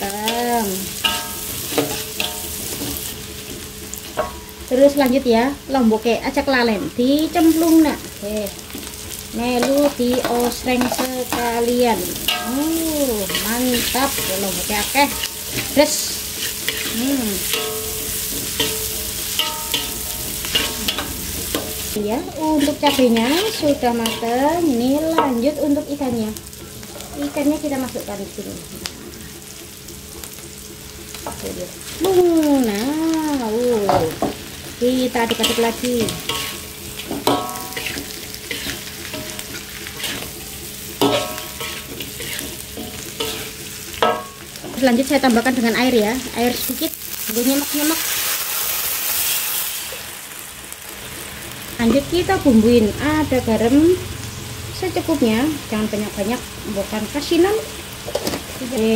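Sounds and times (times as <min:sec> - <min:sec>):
vegetables sizzling in hot oil: 0:00.0 - 0:58.9
metal spatula scraping wok: 0:00.1 - 0:04.7, 0:08.8 - 0:27.6, 0:33.8 - 0:46.7.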